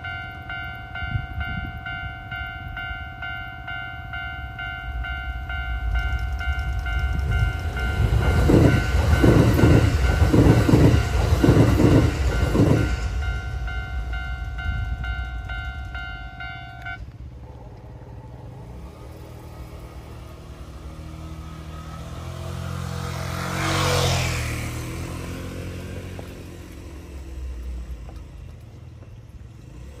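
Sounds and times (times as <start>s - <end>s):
level-crossing alarm ringing: 0.0s - 17.0s
vehicle passing close by: 17.6s - 27.6s.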